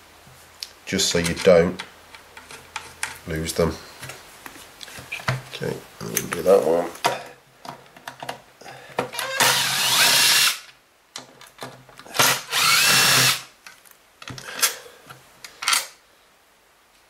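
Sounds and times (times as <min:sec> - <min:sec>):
power driver whirring: 0:09.2 - 0:10.6, 0:12.2 - 0:13.4.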